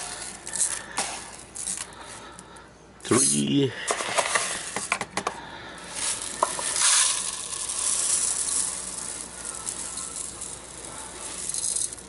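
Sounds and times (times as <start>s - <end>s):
rice grains pouring: 0.0s - 1.9s, 5.9s - 12.0s.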